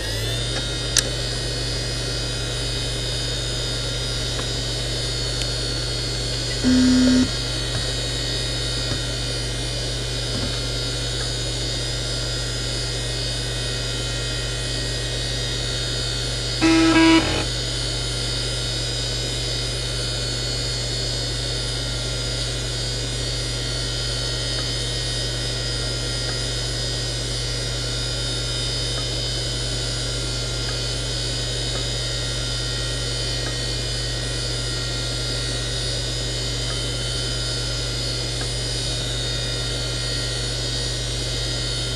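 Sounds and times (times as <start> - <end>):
hard drive humming and whining: 0.0 - 41.9
short electronic beep: 6.5 - 7.3, 16.6 - 17.5.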